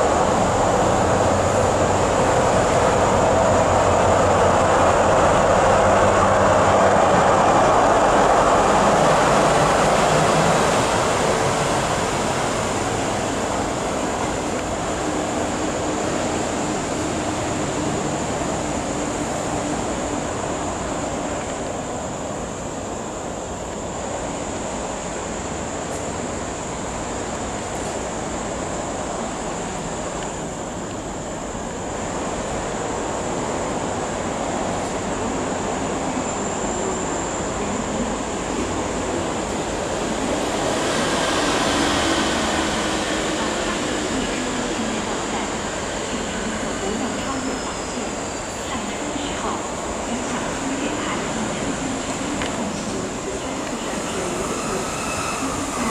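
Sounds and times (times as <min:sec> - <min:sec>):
train wheels on rails: 0:00.0 - 0:55.9
locomotive engine: 0:33.8 - 0:48.3.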